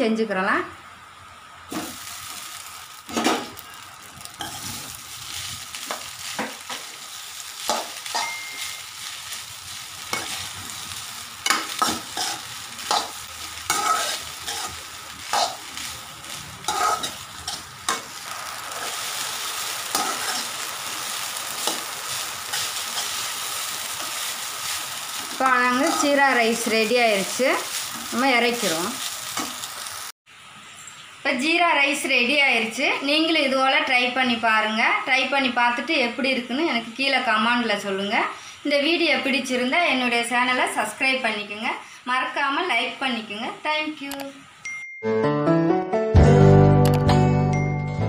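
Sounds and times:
rice sizzling in a pan: 1.0s - 44.1s
metal ladle scraping a pan: 11.5s - 15.6s, 16.6s - 18.1s, 25.7s - 26.3s.

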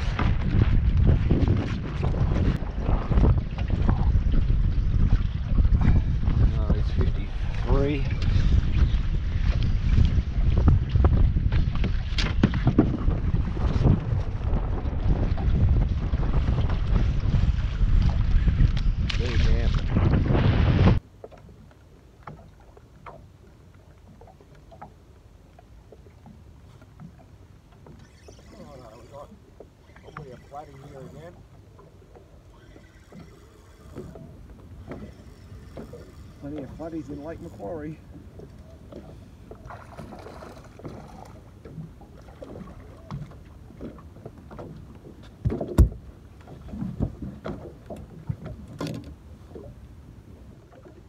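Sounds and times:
low rumble of wind: 0.0s - 51.0s
water lapping around a boat: 0.0s - 51.0s
fish thumping on boat: 45.4s - 46.0s.

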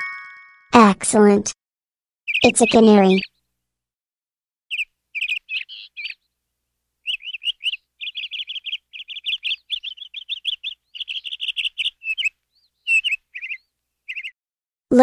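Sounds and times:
canary singing trills: 2.3s - 3.5s, 4.7s - 6.4s, 7.0s - 14.4s.

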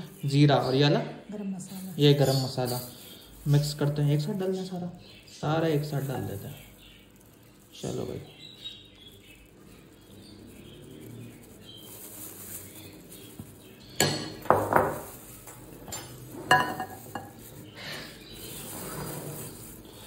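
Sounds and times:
glass plate clinking on glass bowl: 14.0s - 15.1s, 15.8s - 17.4s.

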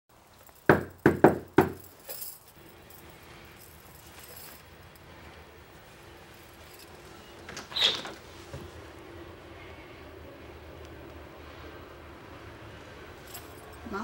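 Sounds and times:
low room hum: 0.1s - 14.0s
knocking on door: 0.7s - 1.8s.

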